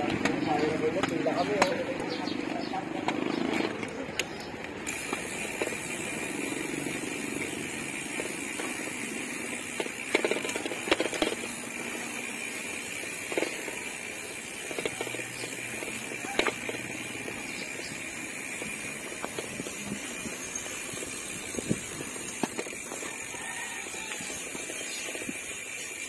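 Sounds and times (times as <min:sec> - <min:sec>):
bicycle knocks and rattles: 0:00.0 - 0:26.0
road rumble: 0:00.0 - 0:26.0.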